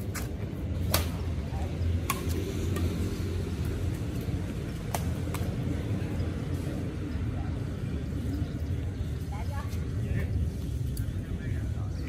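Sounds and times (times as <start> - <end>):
rackets striking shuttlecock: 0.0 - 3.8, 4.8 - 5.7
low rumble of city traffic: 0.0 - 12.0.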